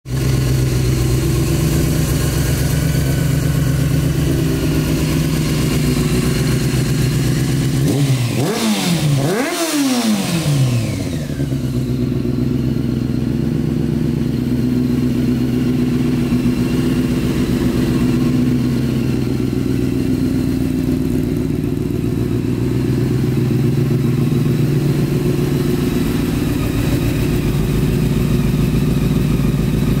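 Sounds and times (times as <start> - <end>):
motorcycle engine idling and revving: 0.1 - 30.0.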